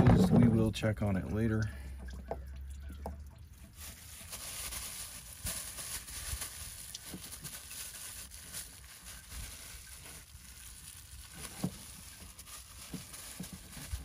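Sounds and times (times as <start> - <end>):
plastic bag crinkling: 3.6 - 14.0.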